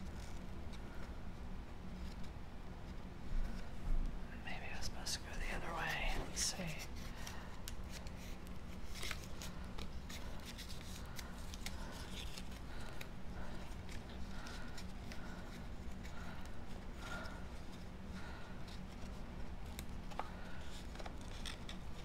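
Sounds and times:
low steady hum: 0.0 - 22.0
paper rustling and rubbing: 5.5 - 22.0.

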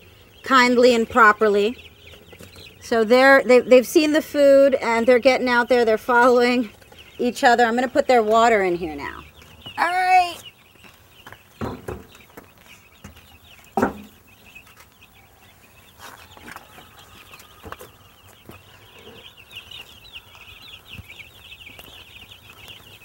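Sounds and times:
chicks peeping: 0.0 - 23.0
metal waterer knocks: 11.6 - 12.1, 13.8 - 14.2.

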